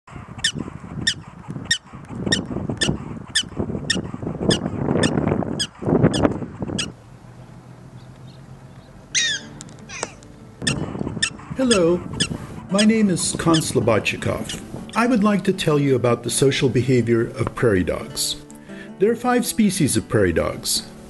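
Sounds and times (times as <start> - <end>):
prairie dog chirping barks: 0.1 - 7.0, 9.1 - 15.1.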